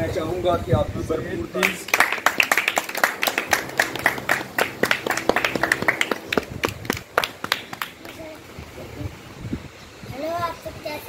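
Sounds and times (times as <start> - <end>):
audience applauding: 1.6 - 8.4.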